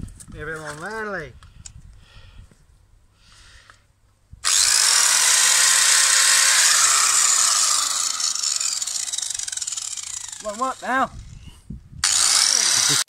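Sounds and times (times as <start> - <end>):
angle grinder whining: 4.4 - 11.4, 12.0 - 13.0.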